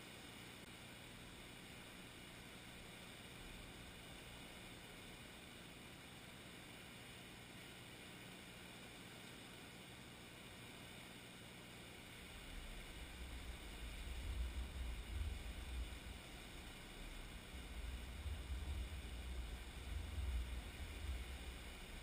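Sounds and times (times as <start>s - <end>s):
faint steady hiss: 0.0s - 22.0s
wind buffeting microphone: 17.4s - 22.0s.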